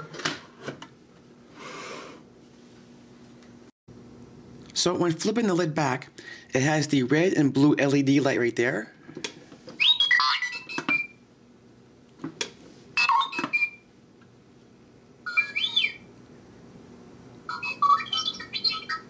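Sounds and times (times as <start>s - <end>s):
robot beeping and whistling: 9.8s - 11.2s, 13.0s - 13.8s, 15.3s - 16.1s, 17.5s - 19.0s.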